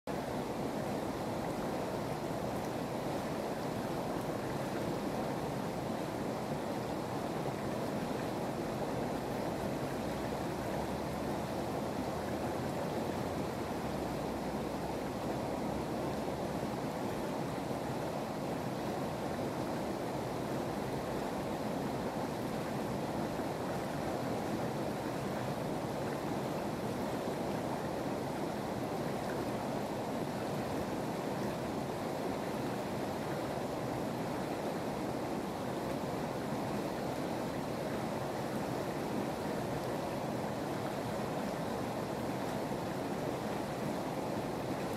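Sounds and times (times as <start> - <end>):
river water flowing over rocks: 0.1 - 44.9.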